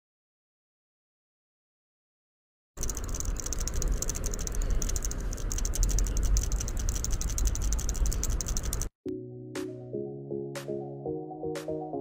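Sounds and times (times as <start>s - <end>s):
fast rattling clicks: 2.8s - 8.9s.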